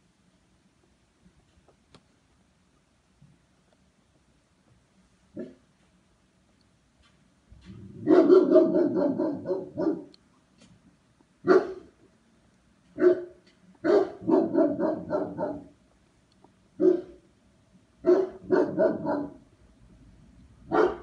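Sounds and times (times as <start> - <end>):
dog barking: 5.4 - 5.6, 8.0 - 10.2, 11.4 - 11.9, 13.0 - 15.8, 16.8 - 17.2, 18.0 - 19.4, 20.7 - 21.0.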